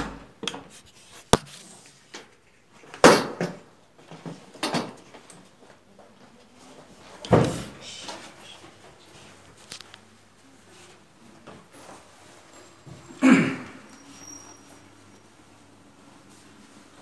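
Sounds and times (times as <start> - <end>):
hands rustling in a cupboard: 13.8 - 17.0.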